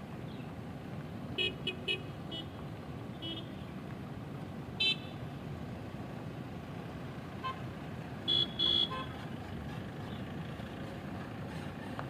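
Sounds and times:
traffic rumble: 0.0s - 12.0s
car horns tooting: 8.2s - 9.2s.

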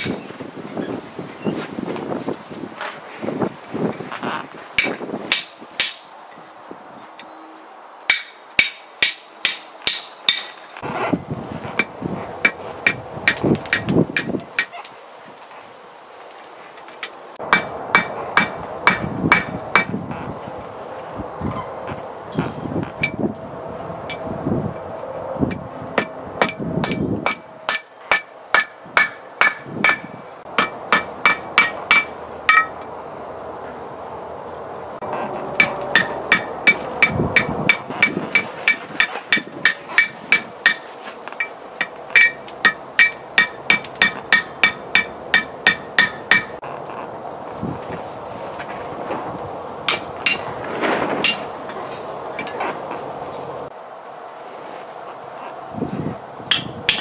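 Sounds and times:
hammer striking hot metal on anvil: 4.8s - 6.0s, 8.1s - 10.6s, 17.5s - 19.9s, 26.0s - 32.8s, 35.6s - 46.6s, 49.9s - 50.5s, 56.5s - 57.0s
anvil ringing: 30.6s - 32.8s.

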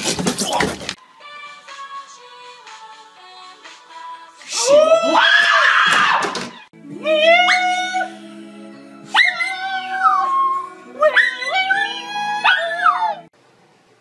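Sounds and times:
background music with low notes: 1.0s - 5.2s, 6.7s - 13.3s
dog howling: 7.0s - 8.2s, 9.1s - 13.3s.

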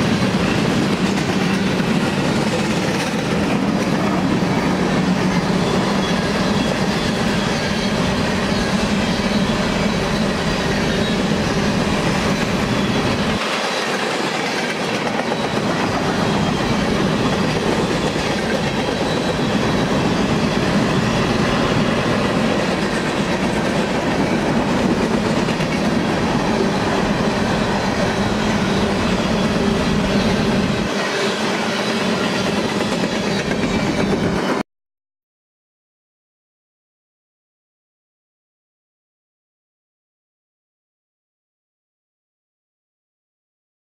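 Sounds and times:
freight train wheels rumbling: 0.0s - 34.6s
wheels clickety-clack over joints: 0.2s - 4.3s.

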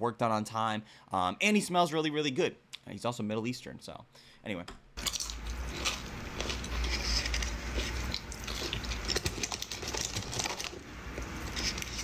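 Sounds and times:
low steady hum: 4.1s - 12.0s
mouth chewing food: 5.0s - 12.0s.

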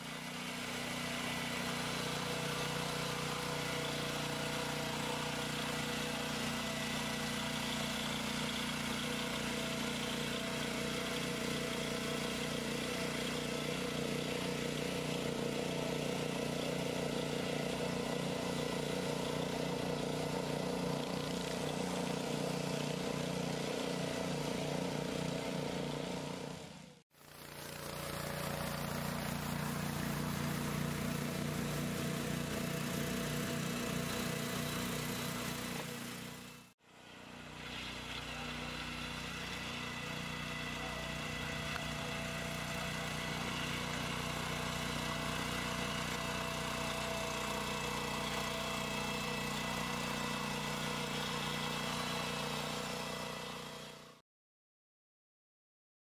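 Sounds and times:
tractor engine running: 37.4s - 54.0s.

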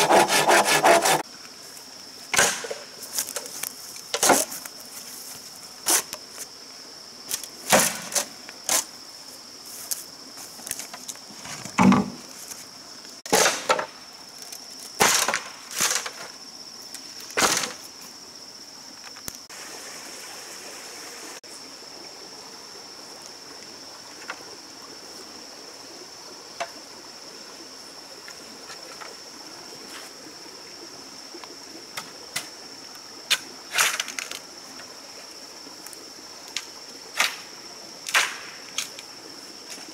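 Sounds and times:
high insect buzz: 0.0s - 39.9s
bamboo poles knocking: 11.7s - 12.2s.

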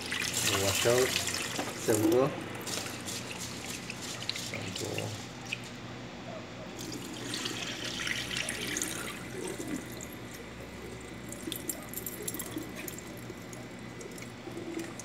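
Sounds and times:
water pouring into a sink: 0.0s - 5.2s, 6.8s - 10.3s, 11.2s - 15.0s
water dripping: 11.2s - 15.0s.

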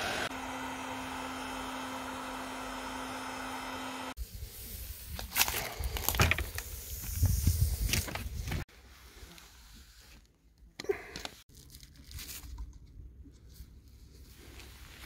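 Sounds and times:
rustling crackling handling noise: 11.2s - 15.0s.

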